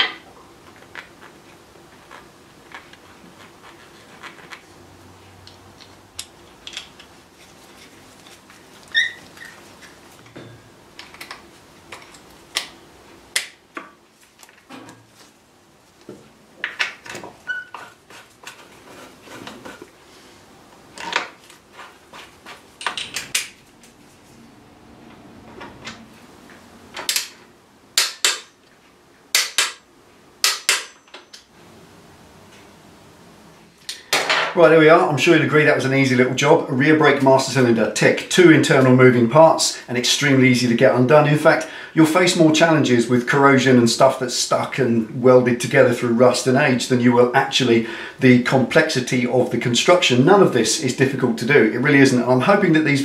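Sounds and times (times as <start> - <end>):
brief high squeak: 8.9 - 9.6.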